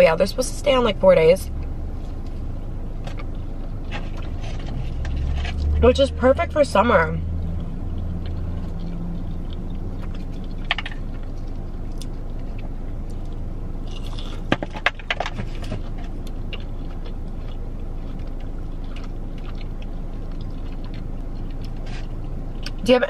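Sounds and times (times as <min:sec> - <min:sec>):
steady low hum: 0:00.0 - 0:23.0
chewing and biting fried food: 0:01.5 - 0:22.9
crunching: 0:07.4 - 0:22.8.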